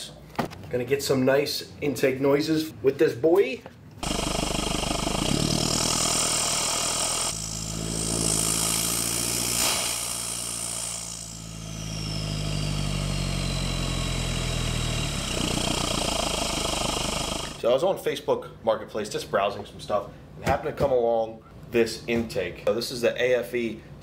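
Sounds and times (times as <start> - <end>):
diesel engine running: 4.0 - 8.4, 11.2 - 17.6
turbo intake hiss: 4.0 - 17.6.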